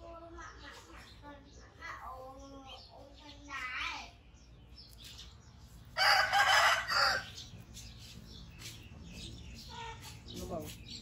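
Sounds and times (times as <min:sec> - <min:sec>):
rooster crowing: 0:06.0 - 0:07.4.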